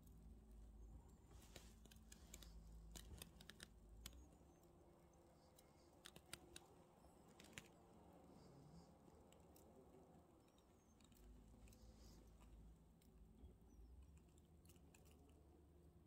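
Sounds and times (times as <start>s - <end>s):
faint dry clicks and crackles: 1.3s - 4.7s, 5.4s - 7.9s.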